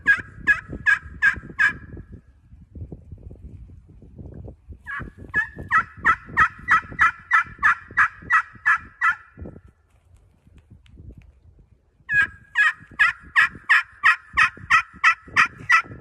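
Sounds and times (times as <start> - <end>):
turkey call yelps: 0.0 - 1.8, 4.9 - 9.3, 12.1 - 15.9.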